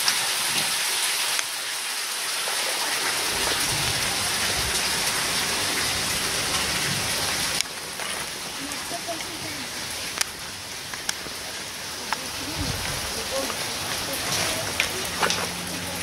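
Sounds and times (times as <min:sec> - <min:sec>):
meltwater dripping and trickling: 0:00.0 - 0:16.0
low rumble: 0:12.4 - 0:13.9.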